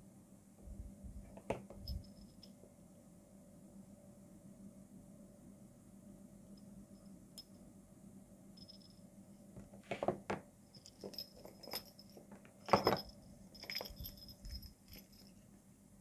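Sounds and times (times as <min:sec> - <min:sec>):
small bell tinkling: 0:01.8 - 0:02.6, 0:08.6 - 0:09.1, 0:10.7 - 0:15.4
keys jangling: 0:10.8 - 0:15.4.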